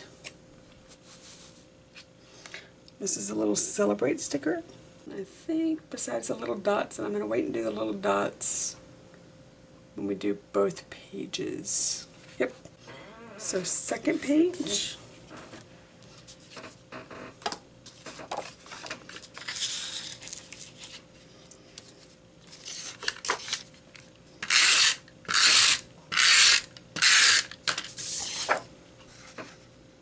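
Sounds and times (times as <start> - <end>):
paper sheets rustling: 17.9 - 21.1, 21.9 - 23.8, 27.8 - 29.6
tape runner zipping across paper: 24.4 - 28.6.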